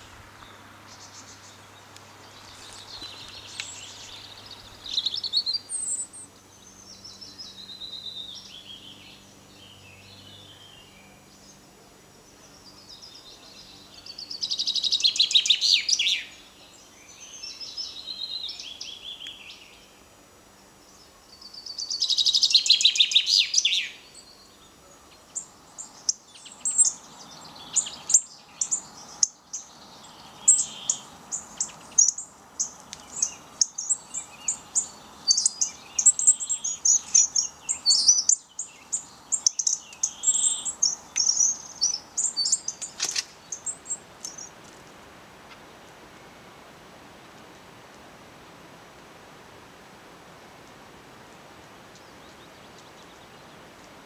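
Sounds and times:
chaffinch song trills: 0.0s - 44.7s.

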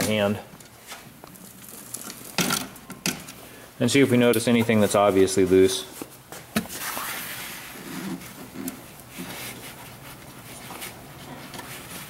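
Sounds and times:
hand rustling wiring: 0.0s - 3.4s.

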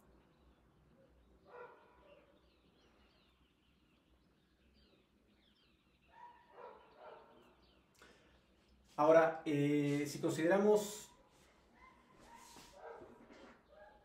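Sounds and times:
distant dog barking: 1.0s - 2.5s, 6.0s - 7.7s, 11.0s - 14.0s.

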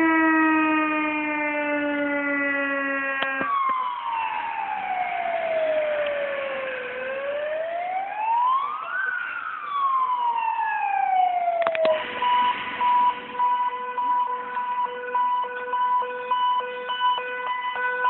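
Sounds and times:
fire engine siren wailing: 0.0s - 18.0s
steady siren tone: 0.0s - 18.0s
siren clicks: 3.1s - 4.0s, 11.5s - 13.6s.

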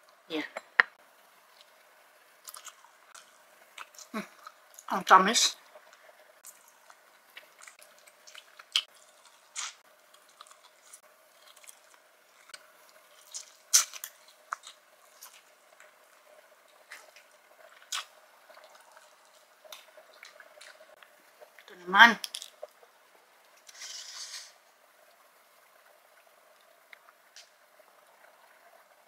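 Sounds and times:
soft wet chewing: 1.4s - 4.9s, 5.6s - 21.7s.

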